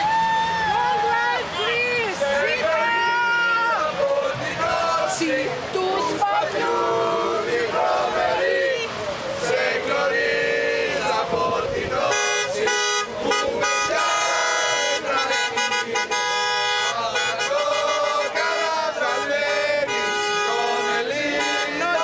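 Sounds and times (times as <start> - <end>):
man chanting through megaphone: 11.2 - 22.0.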